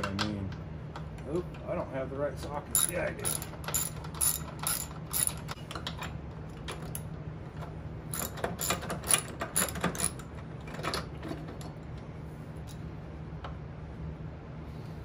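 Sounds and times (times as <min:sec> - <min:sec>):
socket ratchet clicking: 0:02.8 - 0:06.0.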